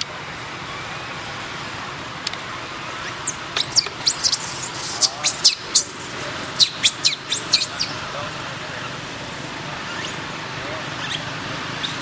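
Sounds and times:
baby monkey screaming: 3.0s - 8.0s, 9.9s - 10.2s, 11.0s - 12.0s.

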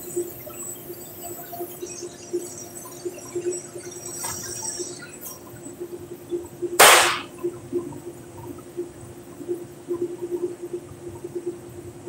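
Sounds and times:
sharp burst of noise: 6.8s - 7.3s.

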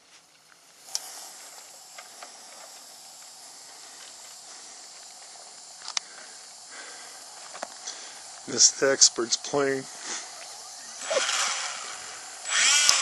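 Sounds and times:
smoke candle hissing: 0.0s - 13.0s
sharp clicks: 0.9s - 1.2s, 12.5s - 13.0s.

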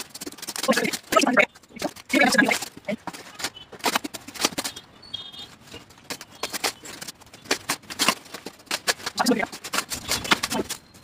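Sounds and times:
cardboard and tape ripping: 6.1s - 10.8s.

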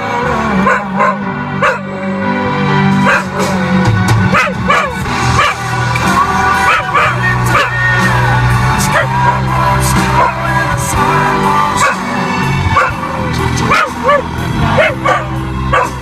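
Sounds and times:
music with steady bass line: 0.0s - 16.0s
dog howling and yipping: 6.6s - 7.8s, 13.7s - 16.0s.

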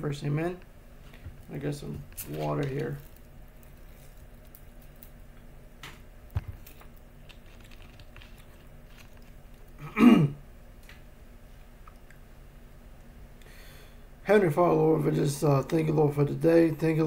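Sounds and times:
plastic bottle handled: 2.0s - 3.2s.

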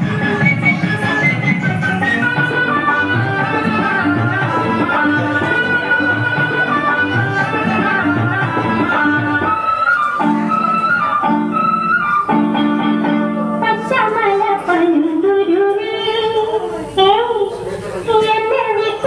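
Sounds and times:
melody over instrumental backing: 0.0s - 16.7s.

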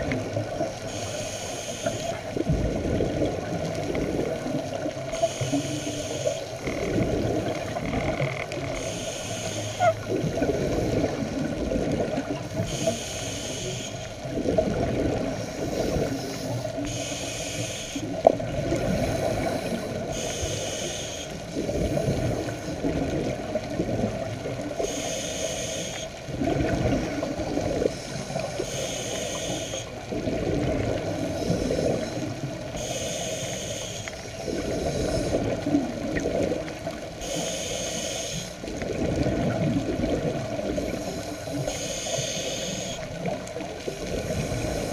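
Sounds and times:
regulator hissing on inhale: 0.8s - 2.3s, 5.1s - 6.6s, 8.7s - 11.2s, 12.5s - 14.3s, 15.4s - 18.2s, 18.9s - 22.8s, 24.8s - 26.2s, 27.8s - 30.0s, 31.1s - 35.5s, 37.2s - 38.7s, 40.8s - 43.3s, 43.9s - 44.9s
exhaled bubbles burbling: 2.2s - 5.2s, 6.6s - 8.9s, 9.8s - 12.6s, 14.2s - 16.2s, 18.1s - 20.1s, 21.4s - 24.9s, 26.2s - 28.6s, 30.0s - 32.8s, 34.4s - 37.2s, 38.6s - 41.3s, 43.0s - 44.9s.

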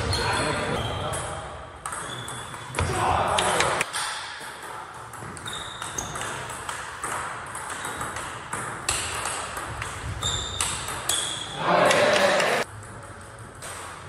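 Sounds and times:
high squeaks: 5.4s - 6.4s, 10.1s - 11.6s.

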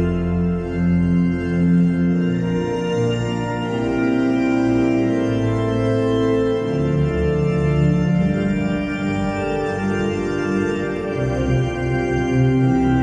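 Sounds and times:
church organ playing a hymn: 0.0s - 13.0s.

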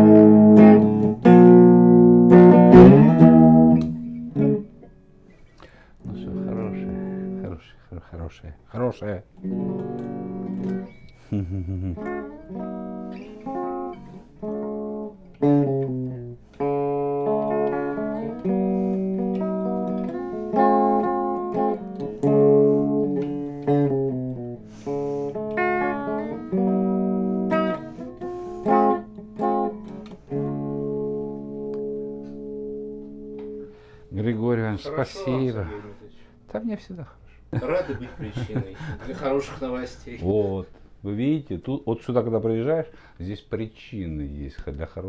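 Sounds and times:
electric guitar playing: 0.0s - 5.4s, 6.0s - 7.6s, 9.3s - 34.1s.

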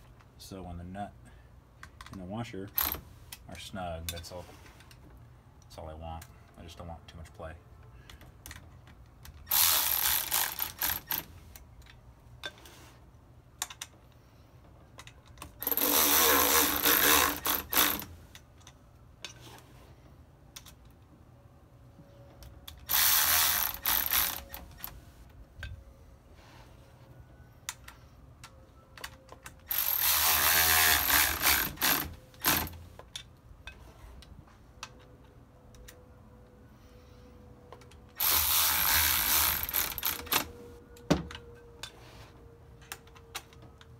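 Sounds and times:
electric ratchet whirring: 9.5s - 11.3s, 15.6s - 18.2s, 22.8s - 25.0s, 29.7s - 32.8s, 38.2s - 40.5s.

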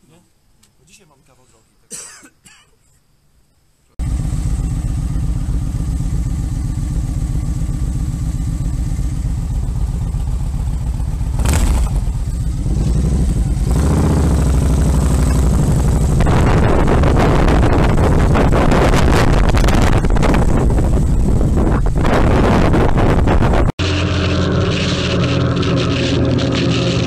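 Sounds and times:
motorcycle engine running: 4.0s - 27.0s
wind noise: 11.4s - 23.7s.

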